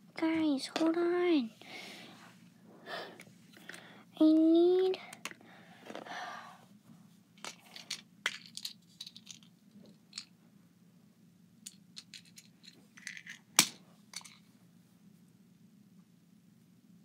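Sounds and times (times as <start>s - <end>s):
small hard objects rummaged: 7.4s - 10.3s.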